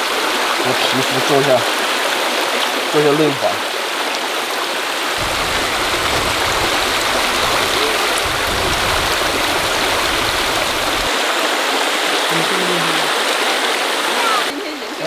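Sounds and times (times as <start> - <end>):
stream rushing over stones: 0.0 - 15.0
low rumble: 5.2 - 11.1.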